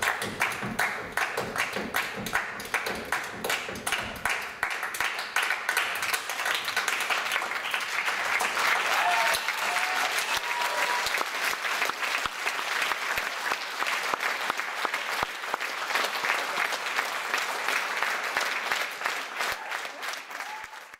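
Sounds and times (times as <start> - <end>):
audience applauding: 0.0 - 20.9
short cheers: 8.7 - 11.3, 19.4 - 20.9.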